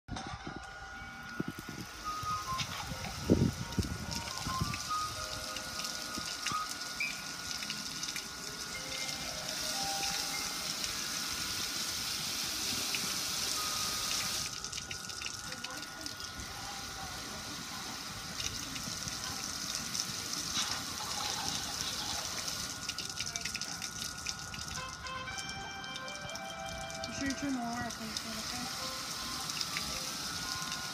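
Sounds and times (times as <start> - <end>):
water dripping: 1.2 - 16.8, 17.7 - 30.9
water splashing on metal grill: 2.3 - 30.9.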